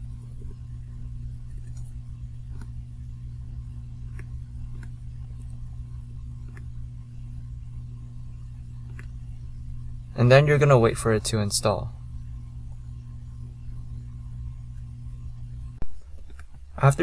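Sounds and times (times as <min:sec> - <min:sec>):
low electrical hum: 0:00.0 - 0:17.0
computer mouse clicks: 0:01.5 - 0:02.8, 0:04.0 - 0:05.6, 0:06.4 - 0:06.8, 0:08.8 - 0:09.2, 0:15.8 - 0:16.8.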